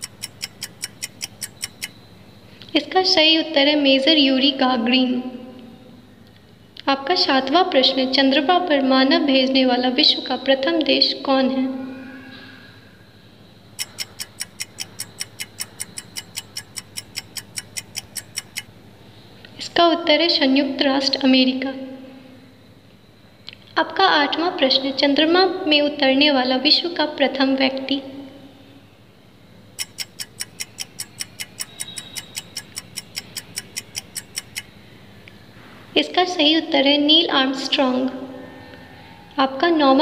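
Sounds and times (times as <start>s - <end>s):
rapid clock ticking: 0.0s - 2.0s, 13.8s - 18.7s, 29.8s - 34.7s.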